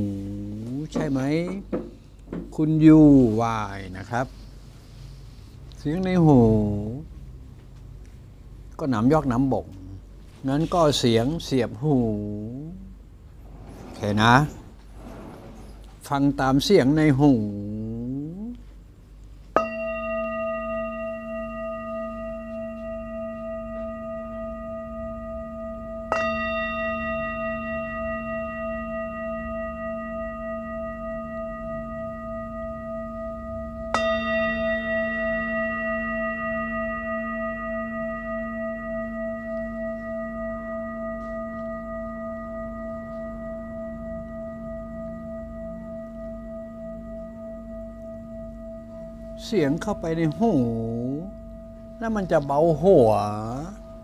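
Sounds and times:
singing bowl ringing: 0:19.6 - 0:54.0.

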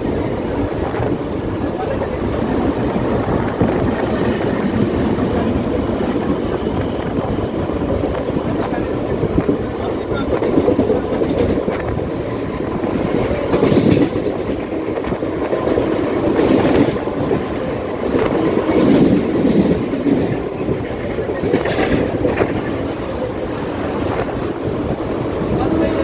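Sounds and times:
train wheels rumbling on rail: 0:00.0 - 0:26.0
wheels clacking over rail joints: 0:07.7 - 0:23.2.

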